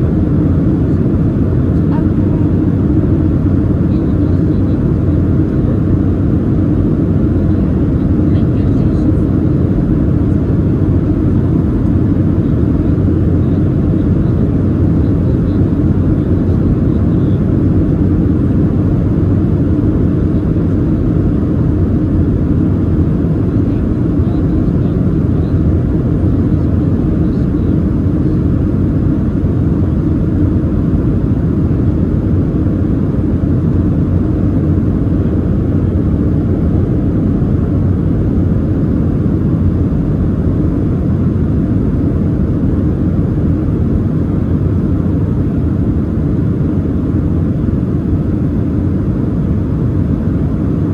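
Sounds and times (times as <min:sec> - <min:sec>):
airplane cabin rumble: 0:00.0 - 0:50.9.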